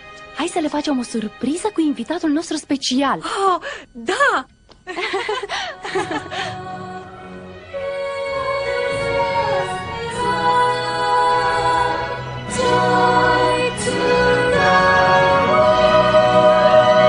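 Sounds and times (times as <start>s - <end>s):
instrumental backing music: 4.1s - 17.0s
children's choir singing: 5.8s - 17.0s.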